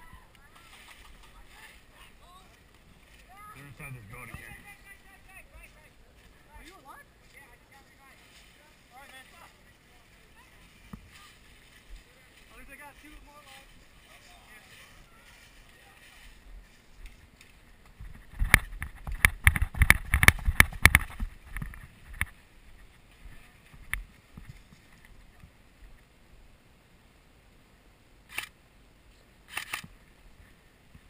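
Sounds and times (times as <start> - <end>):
rustling: 0.0 - 26.1
sharp clicks and knocks: 17.4 - 22.4.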